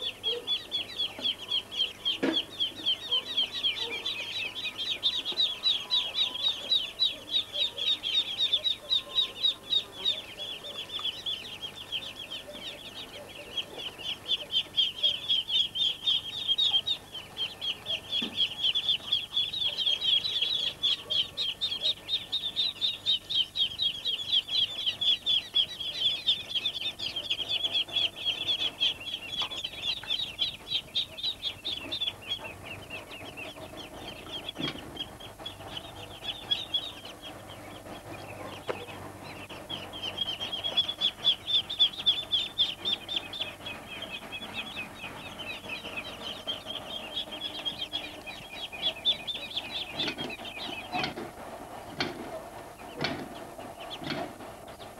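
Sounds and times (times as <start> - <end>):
ducklings peeping: 0.0 - 54.9.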